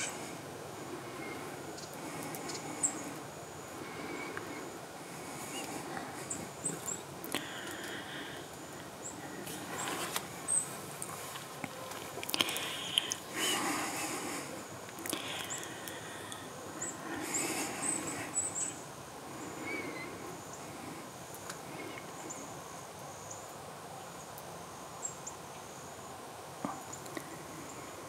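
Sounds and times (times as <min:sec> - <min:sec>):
small birds chirping: 0:00.0 - 0:28.0
light rustle: 0:09.3 - 0:13.2.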